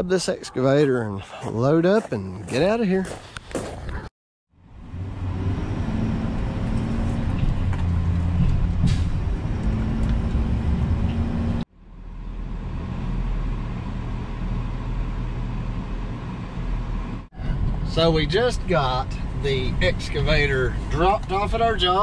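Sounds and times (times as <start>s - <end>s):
deep engine rumble: 4.5s - 22.0s
truck engine rumble in cab: 4.6s - 22.0s.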